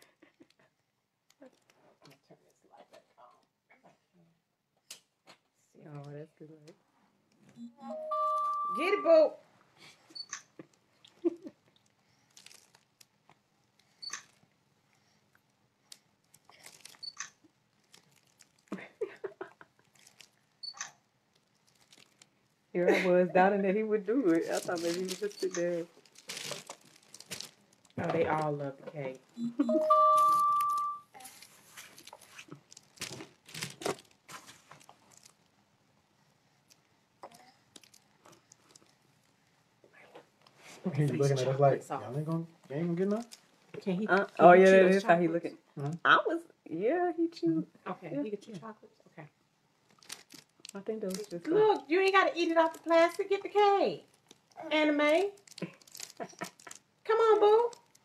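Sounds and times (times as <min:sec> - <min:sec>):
loud steady high tone: 0:07.6 - 0:09.2, 0:29.7 - 0:31.1
plastic sheeting crinkling: 0:10.6 - 0:14.4, 0:15.9 - 0:18.8, 0:19.6 - 0:20.6, 0:21.3 - 0:22.6, 0:24.1 - 0:28.8, 0:31.2 - 0:35.5, 0:37.7 - 0:39.4, 0:43.0 - 0:43.6, 0:49.9 - 0:51.8, 0:52.4 - 0:58.0
plastic sheeting rustling: 0:12.1 - 0:13.0, 0:24.2 - 0:28.6, 0:31.2 - 0:35.5, 0:55.1 - 0:56.8.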